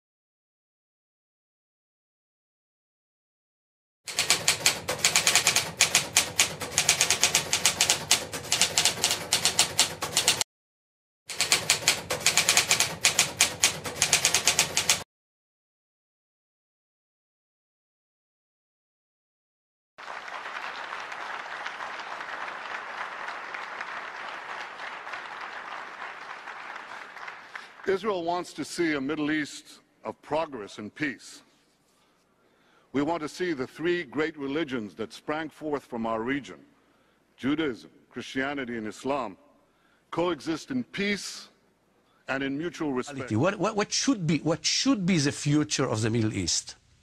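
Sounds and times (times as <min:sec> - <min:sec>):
typewriter key clicks: 0:04.1 - 0:10.4, 0:11.3 - 0:15.0
audience applause: 0:20.0 - 0:27.9.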